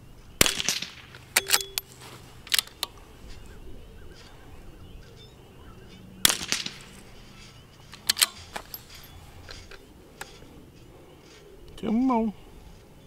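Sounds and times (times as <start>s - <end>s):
rifle shots: 0.4s - 1.8s, 6.2s - 6.9s
quieter sharp crack: 0.4s - 1.9s, 6.2s - 7.1s.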